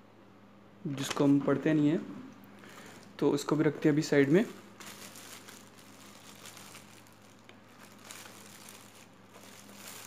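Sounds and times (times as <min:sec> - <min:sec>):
plastic wrapping crinkling: 0:04.0 - 0:10.0.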